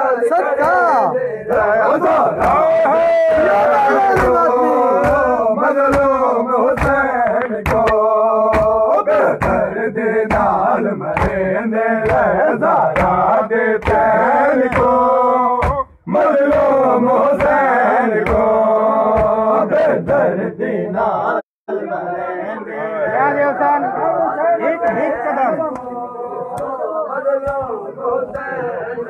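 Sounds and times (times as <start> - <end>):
men chanting in unison: 0.0 - 29.0
hands slapping chests: 1.5 - 20.3, 24.8 - 26.8, 27.4 - 28.6.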